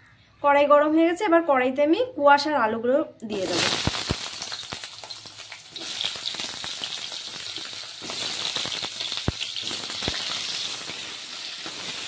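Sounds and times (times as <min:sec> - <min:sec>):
vegetables sizzling in hot oil: 0:03.3 - 0:12.0.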